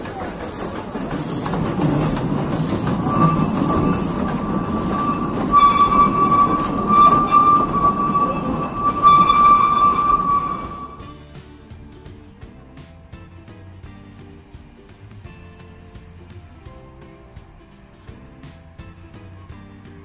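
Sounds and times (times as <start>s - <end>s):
train wheels rumbling on track: 0.0s - 19.4s
high wheel squeal: 0.4s - 11.2s.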